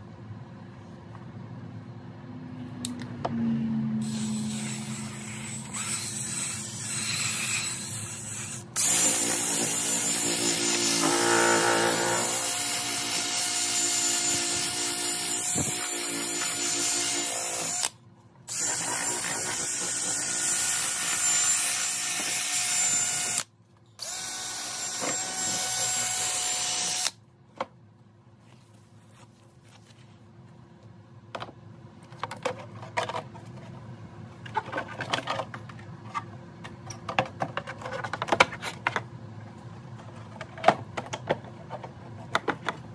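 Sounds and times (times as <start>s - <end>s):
electric polisher whining: 8.8s - 12.4s.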